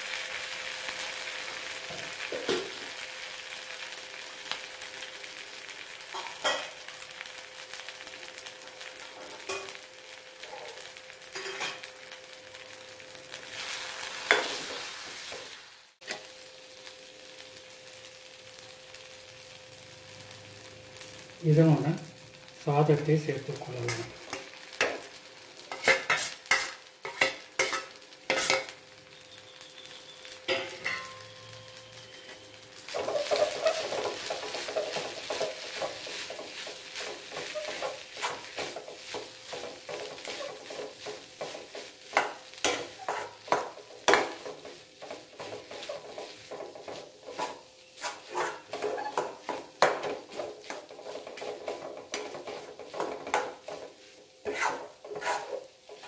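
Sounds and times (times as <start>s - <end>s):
light sizzle: 0.0s - 56.0s
stirring rice in pan: 24.2s - 28.7s, 32.9s - 56.0s
steel spoon clinking on pan: 30.5s - 31.3s.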